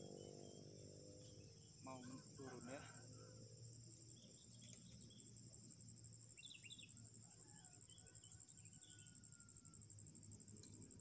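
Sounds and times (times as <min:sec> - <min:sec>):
high-pitched insect trill: 0:00.0 - 0:11.0
faint bird chirps: 0:06.4 - 0:08.1.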